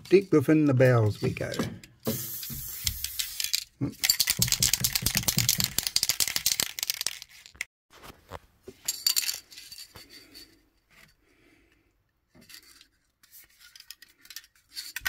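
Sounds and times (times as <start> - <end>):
aerosol can ball rattling: 2.0 - 7.6.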